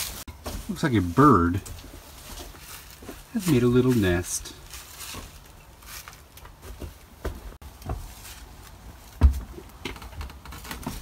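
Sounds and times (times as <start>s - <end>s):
footsteps on wooden floor: 0.3s - 0.8s, 1.6s - 8.4s, 9.1s - 9.6s.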